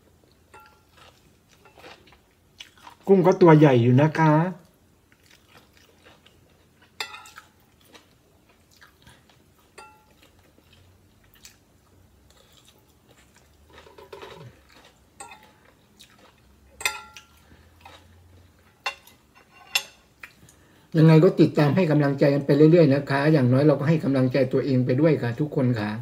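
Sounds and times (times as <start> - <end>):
quiet chewing: 0.2 - 3.1, 4.6 - 19.2, 20.2 - 20.8
cutlery clinking on glass plate: 0.5 - 0.9, 7.0 - 7.5, 9.8 - 10.2, 15.2 - 15.6, 16.8 - 17.4, 18.7 - 20.0.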